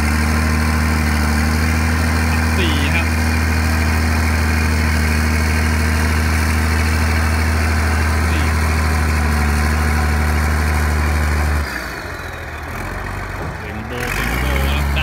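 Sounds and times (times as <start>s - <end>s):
diesel engine humming: 0.0s - 15.0s.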